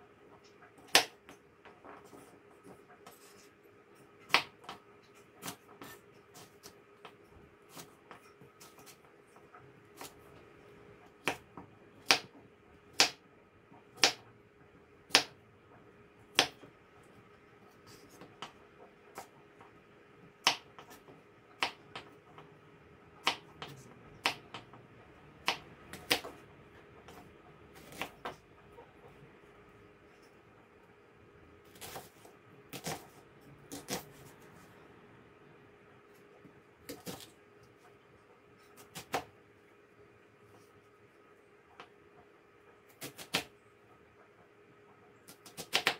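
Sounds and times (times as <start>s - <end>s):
knife chopping on wooden board: 11.2s - 13.2s, 14.0s - 14.2s, 15.1s - 15.4s, 16.3s - 16.7s, 21.6s - 22.1s, 23.2s - 24.7s, 25.4s - 26.4s, 27.8s - 28.4s, 31.7s - 34.2s, 36.9s - 37.3s, 45.4s - 45.9s.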